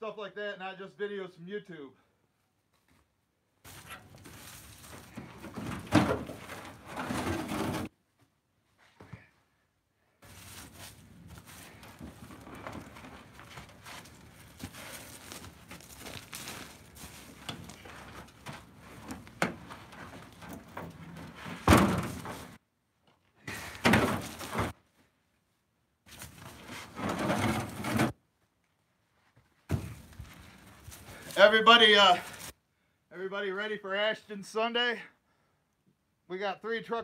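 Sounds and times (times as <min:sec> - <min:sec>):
wood scraping: 0:03.7 - 0:07.9, 0:10.2 - 0:22.6, 0:23.5 - 0:24.8, 0:26.1 - 0:28.2
wooden logs thunking: 0:03.7 - 0:07.9, 0:10.3 - 0:22.6, 0:23.4 - 0:24.8, 0:26.1 - 0:28.2, 0:29.7 - 0:31.4.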